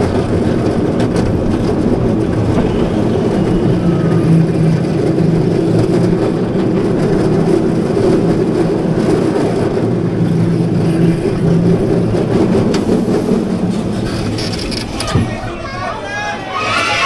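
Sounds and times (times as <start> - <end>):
roller coaster wheels rumbling: 0.0 - 17.0.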